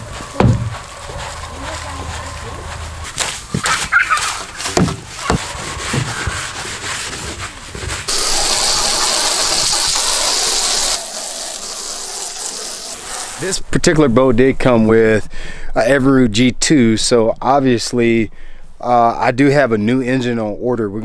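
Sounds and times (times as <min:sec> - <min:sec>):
brush scrubbing boat hull: 0:00.0 - 0:13.5
hose spray hissing: 0:00.0 - 0:13.7.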